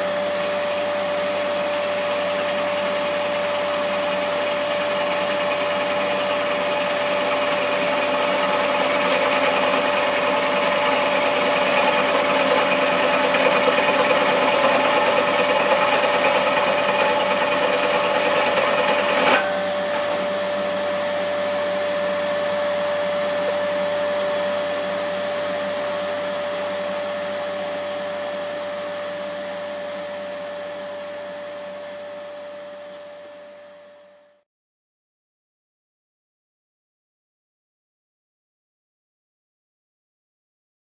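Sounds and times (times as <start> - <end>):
scroll saw motor hum: 3.2 - 25.7
saw blade rasping in metal: 8.0 - 20.2.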